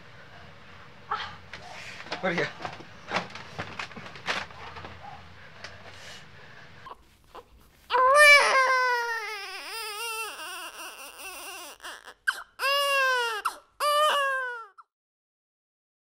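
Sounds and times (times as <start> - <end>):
baby crying: 6.9 - 14.9.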